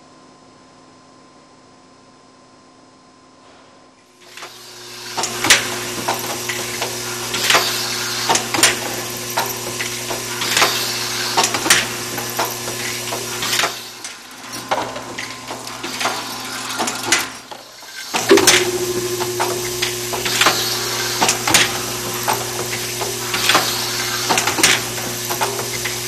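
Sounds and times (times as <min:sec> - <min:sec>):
machine hum: 0:18.3 - 0:21.2.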